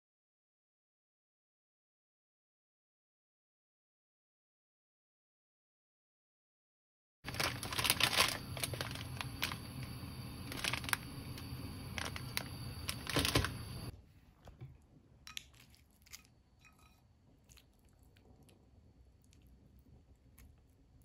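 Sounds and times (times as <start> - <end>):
crackles and clicks: 7.3 - 13.9
gas stove rushing: 7.4 - 13.9.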